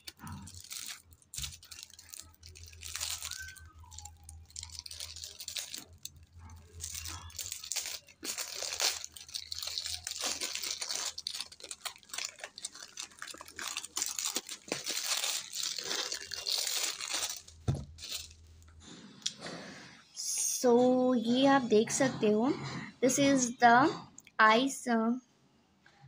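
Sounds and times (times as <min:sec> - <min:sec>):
plastic shrink wrap crinkling: 0:00.0 - 0:18.7.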